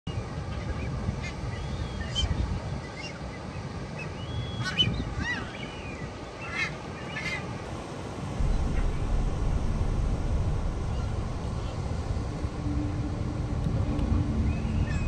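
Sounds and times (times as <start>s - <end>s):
seabird calls: 0.1s - 7.7s, 10.6s - 15.0s
surf rumbling on rocks: 7.6s - 13.5s.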